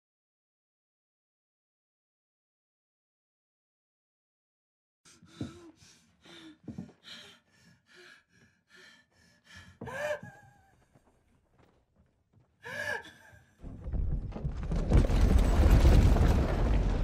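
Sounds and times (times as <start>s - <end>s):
woman breathing shakily: 5.1s - 11.1s, 12.6s - 13.6s
woman whimpering gasp: 5.2s - 10.8s, 12.6s - 13.5s.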